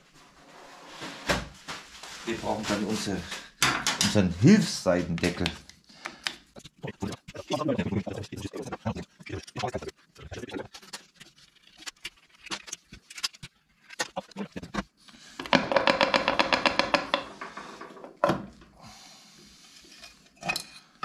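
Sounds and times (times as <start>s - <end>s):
tools clicking and knocking on metal: 3.6s - 4.2s, 15.4s - 18.4s.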